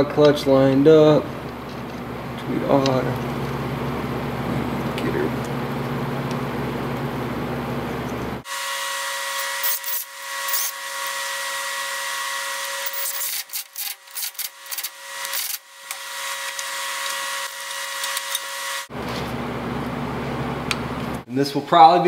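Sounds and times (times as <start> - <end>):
metal clicking and scraping: 12.6 - 17.2.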